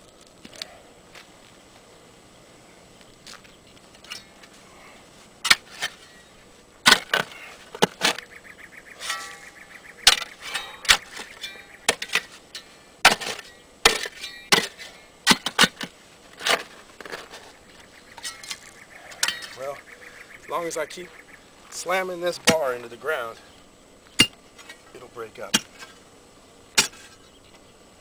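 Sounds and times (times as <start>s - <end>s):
steel bar striking hard ground: 4.0s - 4.5s, 5.4s - 8.2s, 9.0s - 17.5s, 18.2s - 19.6s, 22.2s - 22.9s, 24.1s - 26.0s, 26.7s - 27.2s.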